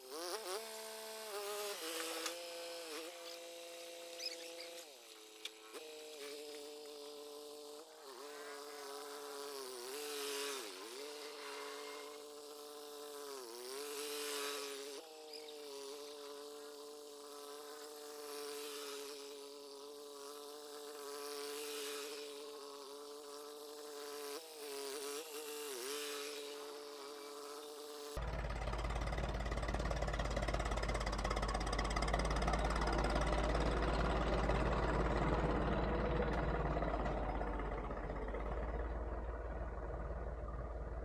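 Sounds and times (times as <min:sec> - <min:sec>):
tractor diesel engine running: 0:28.2 - 0:41.0.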